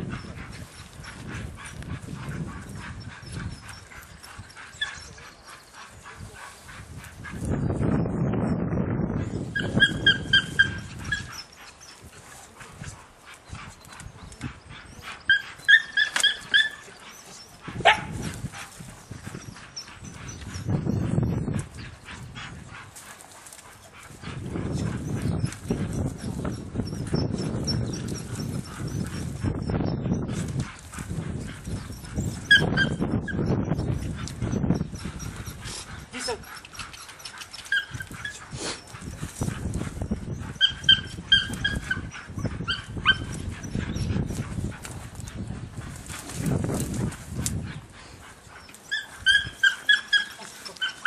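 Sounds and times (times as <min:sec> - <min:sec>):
dog sniffing and panting: 0:00.0 - 0:07.8, 0:09.2 - 0:51.0
dog yelping: 0:09.6 - 0:12.0, 0:15.2 - 0:18.2, 0:31.7 - 0:33.5, 0:35.1 - 0:39.2, 0:40.4 - 0:44.4, 0:48.6 - 0:51.0.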